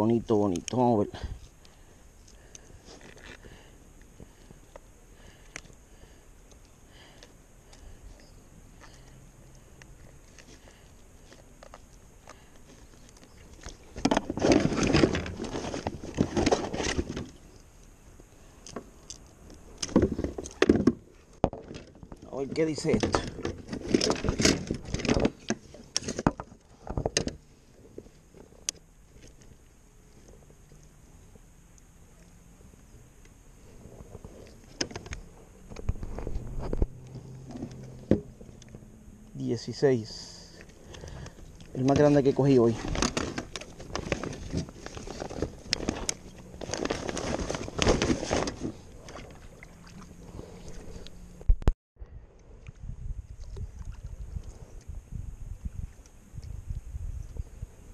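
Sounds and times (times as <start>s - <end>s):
plastic rustling: 10.3s - 17.4s, 40.9s - 49.1s
scrapes and knocks against kayak: 10.3s - 17.5s, 19.5s - 30.5s, 33.7s - 38.8s, 40.5s - 51.2s.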